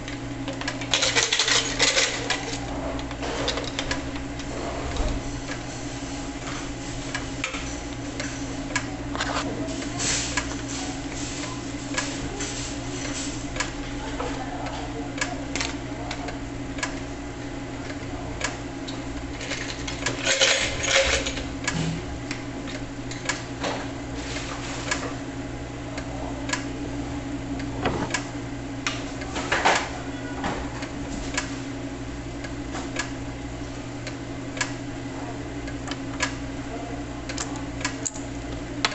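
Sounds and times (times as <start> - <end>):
clicks and knocks: 27.6 - 28.3.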